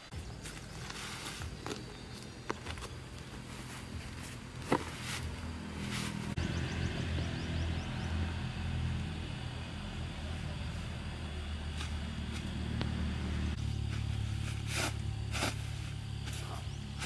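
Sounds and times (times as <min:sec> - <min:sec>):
low engine-like hum: 0:00.1 - 0:17.0
fabric rustling: 0:00.4 - 0:06.4.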